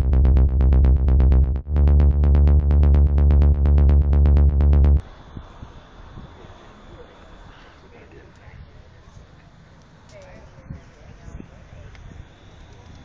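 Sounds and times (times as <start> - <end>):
electronic beat with heavy bass: 0.0 - 5.0
fast ticking rhythm: 0.0 - 5.0.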